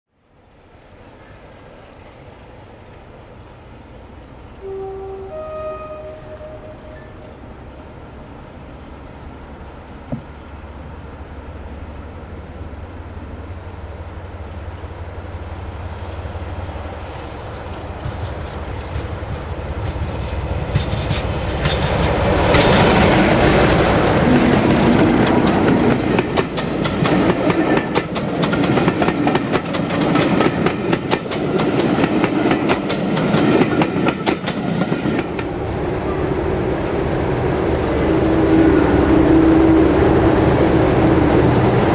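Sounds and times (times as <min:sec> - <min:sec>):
diesel locomotive engine drone: 0:00.2 - 0:41.9
train wheels clickety-clack: 0:16.1 - 0:35.6.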